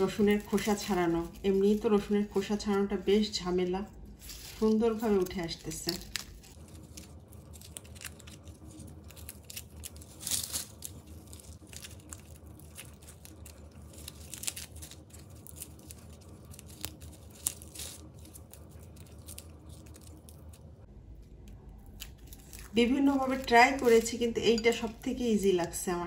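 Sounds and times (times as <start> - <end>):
garlic skins crackling and rustling: 0.0 - 20.8, 21.8 - 26.0.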